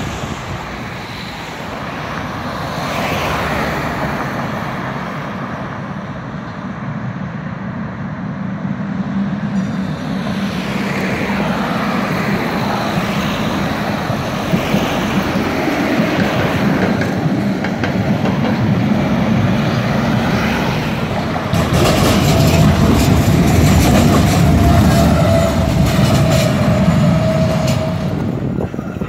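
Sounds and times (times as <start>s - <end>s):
tram rumbling on rails: 0.0s - 29.0s
rail clicks: 9.5s - 29.0s.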